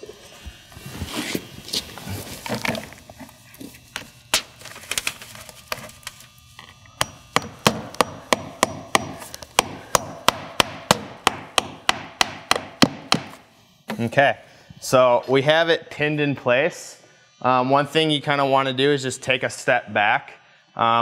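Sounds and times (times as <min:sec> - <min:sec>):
hammer striking nail: 0:07.0 - 0:13.4.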